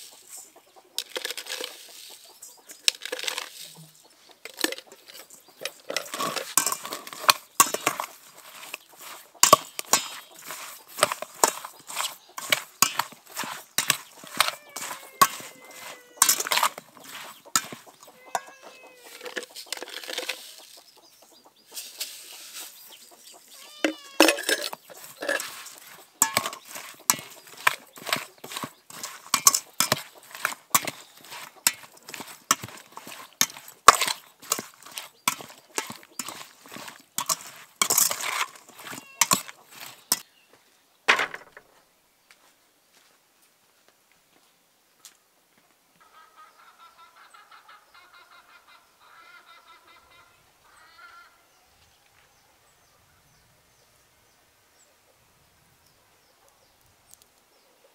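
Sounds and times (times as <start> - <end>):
chickens calling: 0.0 - 40.3, 46.0 - 53.9
sharp knocks and clatter: 23.9 - 40.2, 41.1 - 41.7.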